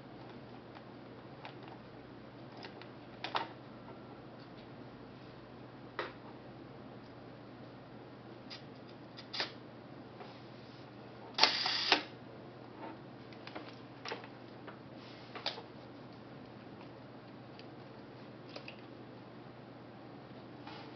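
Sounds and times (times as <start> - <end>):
camera shutter click and buzz: 11.4 - 12.1.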